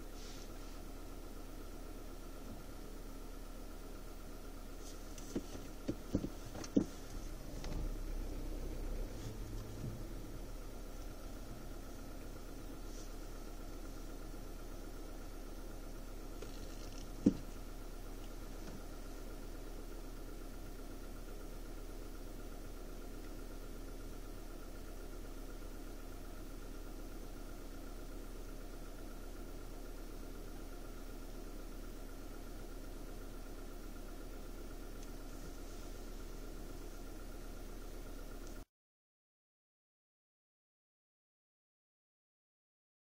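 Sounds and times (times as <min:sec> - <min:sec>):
car engine idling: 0:00.0 - 0:38.7.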